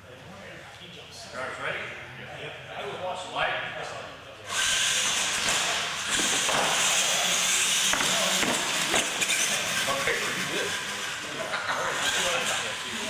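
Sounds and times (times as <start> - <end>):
toy truck motors whining: 4.4 - 13.0.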